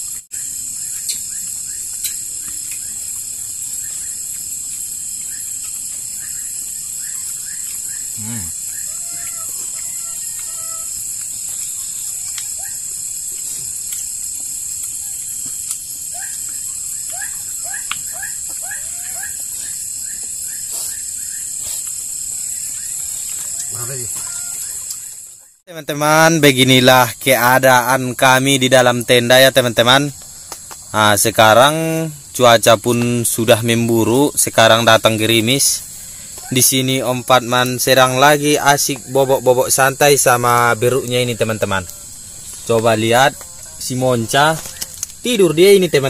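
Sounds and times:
short insect chirps: 0.0 - 25.6, 26.7 - 46.0
crickets chorus: 0.0 - 46.0
squeaky animal calls: 6.2 - 12.9, 16.1 - 19.9, 22.8 - 25.2.

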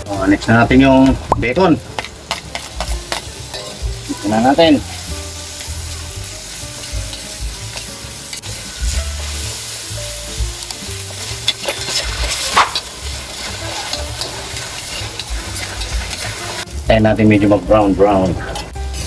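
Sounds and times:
bacon sizzling in a wok: 0.0 - 19.0
spatula scraping a pan: 11.0 - 16.7.

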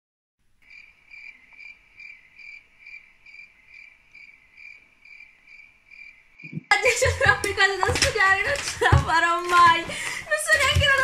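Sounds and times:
cricket chirping: 0.6 - 6.8.

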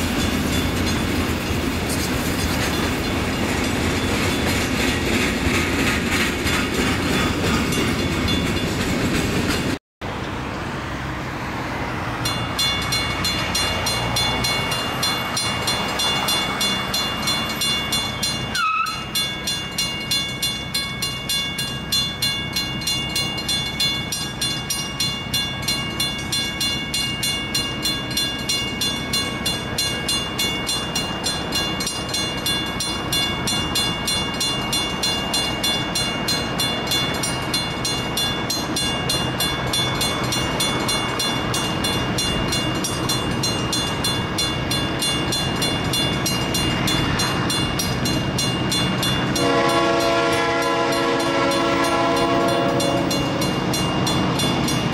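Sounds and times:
railroad crossing bell ringing: 0.0 - 5.4, 6.7 - 9.2, 11.9 - 54.9
freight train wheels on rails: 0.0 - 54.9.

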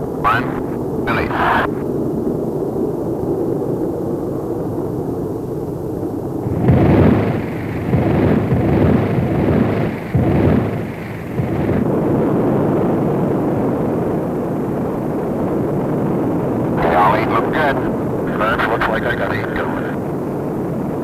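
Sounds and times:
rocket engine roaring: 0.0 - 2.0, 6.4 - 21.0.

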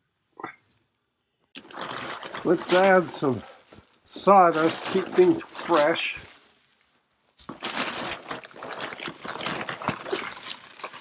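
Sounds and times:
sawdust pouring rustling crackle: 1.6 - 8.6.

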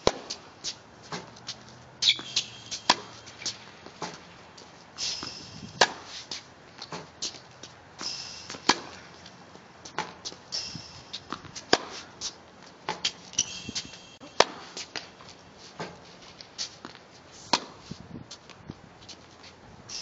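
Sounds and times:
racket striking tennis ball: 0.0 - 7.4, 8.0 - 16.0, 16.8 - 17.8
ball bouncing on court: 2.0 - 4.2.

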